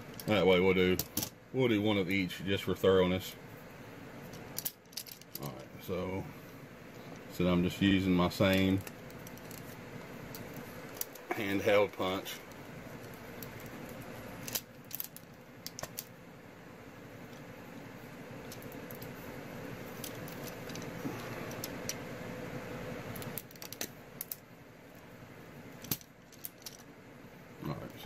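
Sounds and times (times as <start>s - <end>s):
metallic clicks and rattles: 4.3s - 5.6s, 25.8s - 26.9s.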